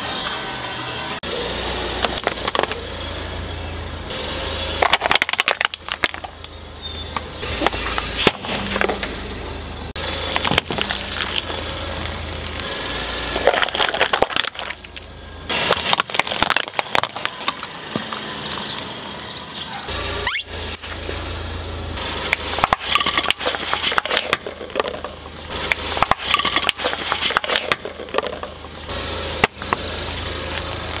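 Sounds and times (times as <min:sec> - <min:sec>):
plastic crunching under car tyre: 0:04.8 - 0:06.5, 0:10.2 - 0:18.3
rising squeal: 0:06.5 - 0:07.7, 0:19.2 - 0:21.3.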